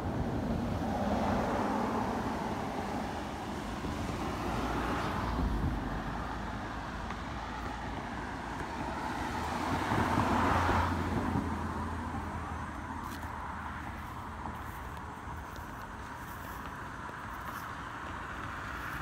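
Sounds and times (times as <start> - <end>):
road traffic noise: 0.0 - 19.0
vehicle passing: 4.1 - 19.0.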